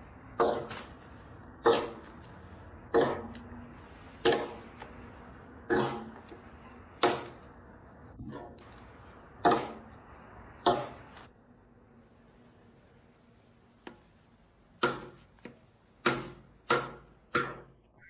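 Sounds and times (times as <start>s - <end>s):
axe chopping into log: 9.4s - 9.8s.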